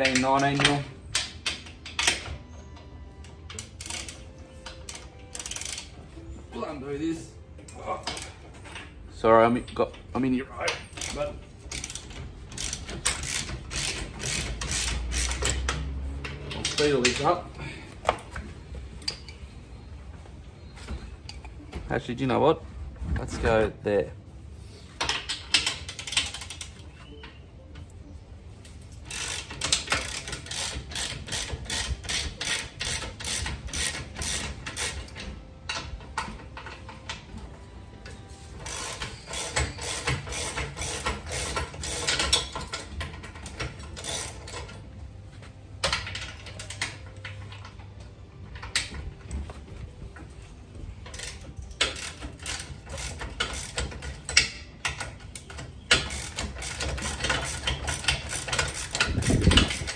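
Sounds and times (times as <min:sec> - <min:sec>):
ratchet spanner clicking: 0:03.5 - 0:05.9, 0:10.9 - 0:17.3, 0:25.0 - 0:26.8, 0:29.0 - 0:36.9, 0:38.6 - 0:44.8, 0:51.1 - 0:59.9.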